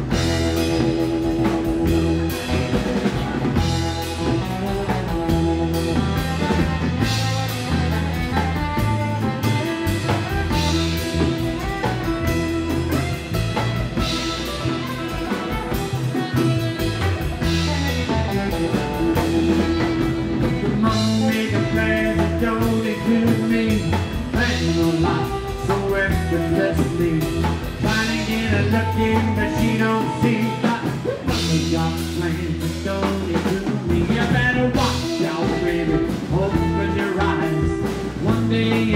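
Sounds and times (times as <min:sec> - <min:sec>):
drum kit beat: 0:00.0 - 0:38.9
electric guitar: 0:00.0 - 0:38.9
upright double bass: 0:00.0 - 0:38.9.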